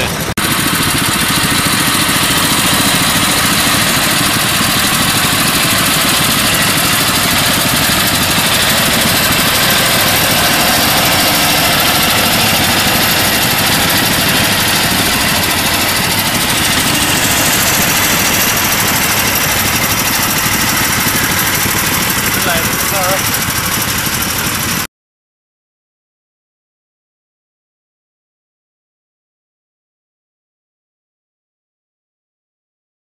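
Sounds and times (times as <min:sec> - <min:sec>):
walking tractor engine running: 0:00.0 - 0:24.8.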